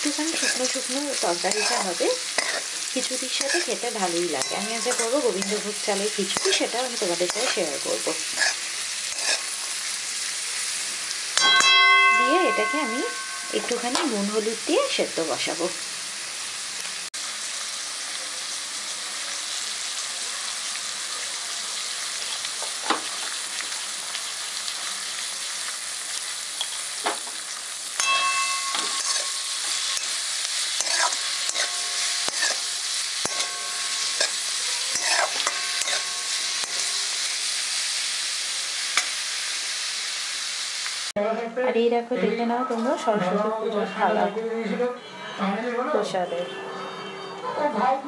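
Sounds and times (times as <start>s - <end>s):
vegetables sizzling in a wok: 0.0s - 41.8s
metal spatula scraping pan: 0.1s - 9.6s, 28.0s - 37.5s.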